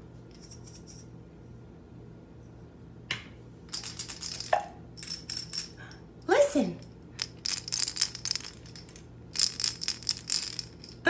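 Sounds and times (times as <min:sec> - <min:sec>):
wooden cylinders rattling: 0:03.7 - 0:05.8, 0:07.2 - 0:11.0.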